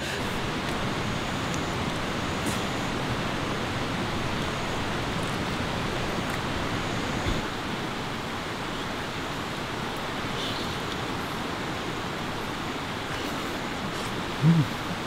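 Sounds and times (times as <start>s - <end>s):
stream flowing over rocks: 0.0s - 15.0s.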